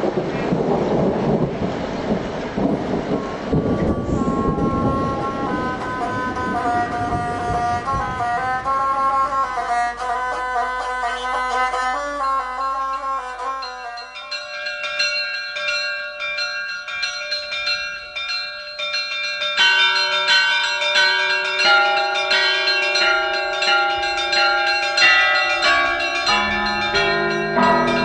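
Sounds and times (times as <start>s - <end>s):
church bells ringing: 2.6s - 8.4s, 12.1s - 28.0s.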